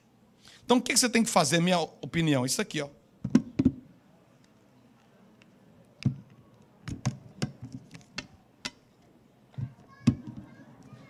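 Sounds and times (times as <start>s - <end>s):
handling taps and knocks: 6.9s - 8.8s.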